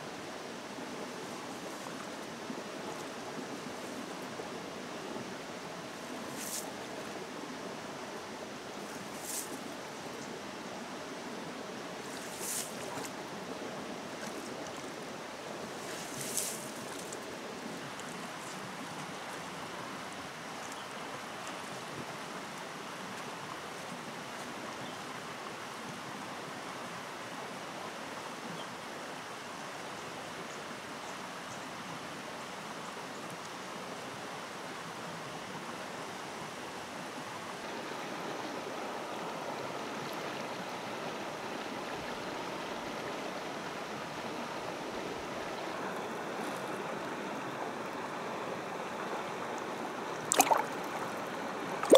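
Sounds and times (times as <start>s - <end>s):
river water over stones: 0.0s - 51.9s.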